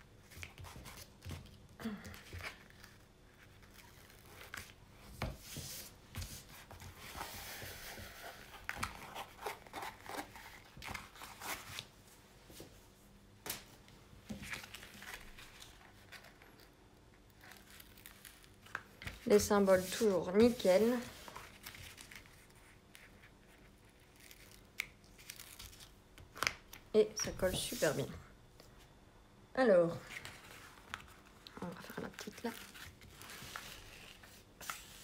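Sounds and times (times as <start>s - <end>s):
packaging crinkling and rustling: 14.4s - 19.3s, 20.6s - 26.9s, 30.0s - 35.0s.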